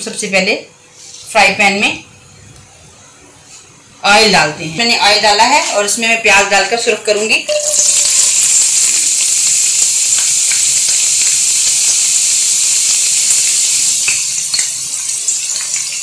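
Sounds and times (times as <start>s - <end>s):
onions sizzling in hot oil: 7.5s - 16.0s
oil popping: 7.6s - 16.0s.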